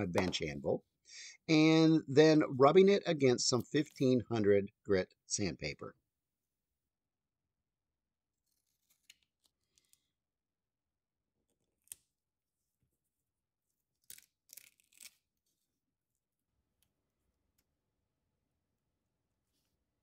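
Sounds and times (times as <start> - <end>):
tape tearing: 14.0 - 15.4.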